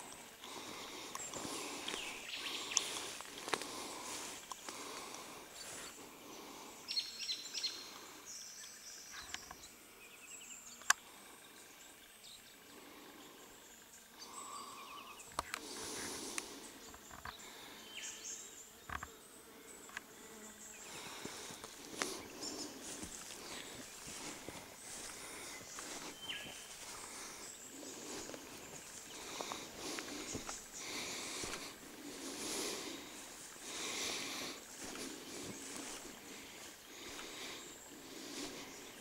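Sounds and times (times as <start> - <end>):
footsteps through grass: 0.1 - 6.0, 20.9 - 38.8.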